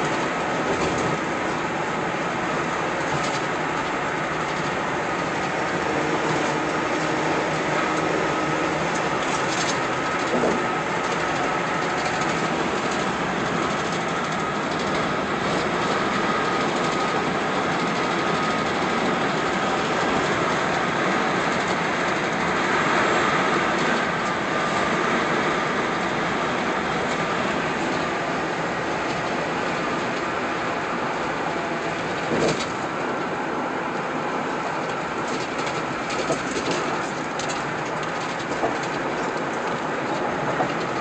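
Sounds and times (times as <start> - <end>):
road and tyre noise in car: 0.0 - 41.0.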